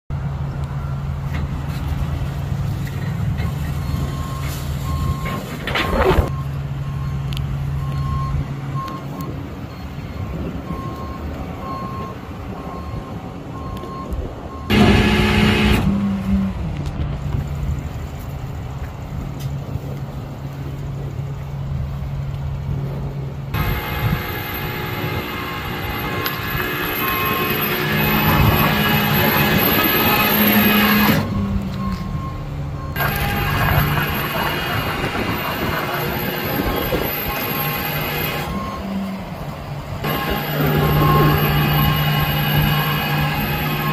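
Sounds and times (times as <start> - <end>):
backup alarm beeping: 7.8 - 16.0, 23.6 - 39.1, 40.0 - 43.9
truck engine running: 14.7 - 43.9.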